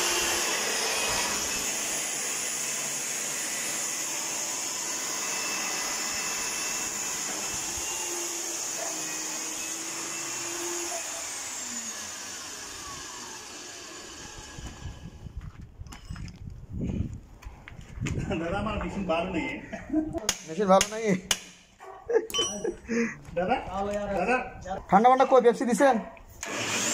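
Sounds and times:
core drill motor whining: 0:00.0 - 0:15.6, 0:26.4 - 0:26.9.

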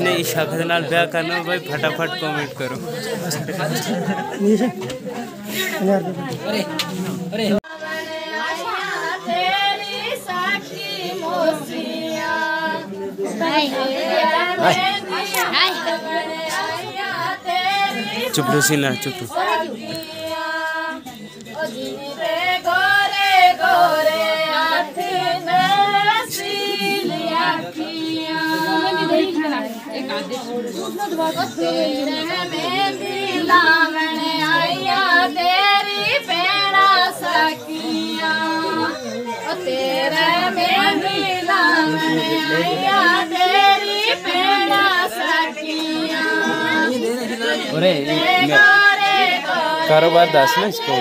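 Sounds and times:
women singing unaccompanied: 0:00.0 - 0:51.0.

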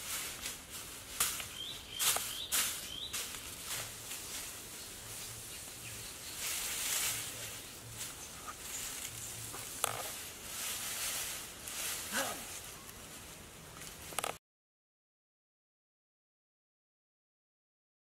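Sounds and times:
steady high hiss: 0:00.0 - 0:14.4
bird calls: 0:01.4 - 0:03.3.

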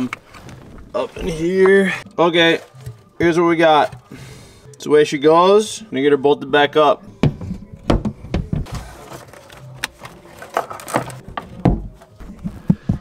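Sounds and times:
metal case knocking and clunking: 0:07.1 - 0:08.7.

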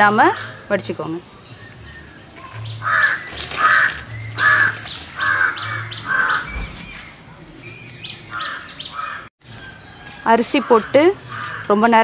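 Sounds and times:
bird cawing: 0:02.4 - 0:06.8, 0:08.2 - 0:09.3, 0:10.6 - 0:11.8.

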